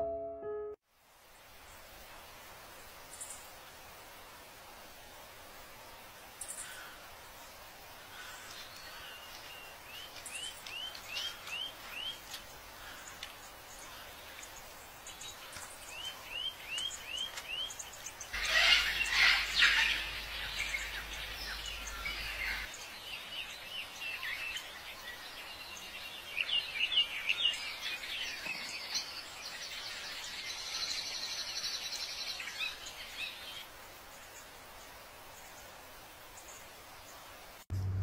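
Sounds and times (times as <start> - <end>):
faint outdoor hiss: 0.8 - 38.0
birds chirping and calling: 8.1 - 22.8.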